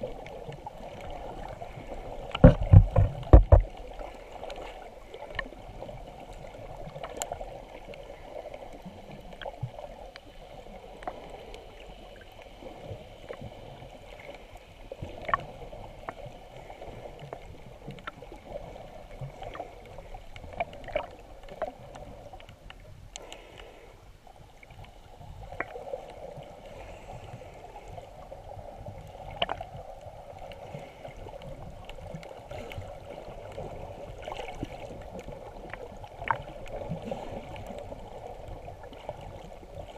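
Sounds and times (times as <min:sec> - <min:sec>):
muffled underwater water rush: 0:00.0 - 0:39.9
small clicks and crackles: 0:00.0 - 0:39.9.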